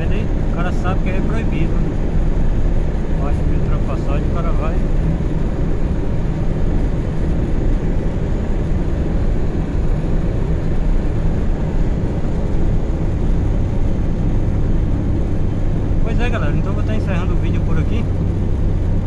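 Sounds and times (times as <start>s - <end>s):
car cabin road rumble: 0.0s - 19.0s.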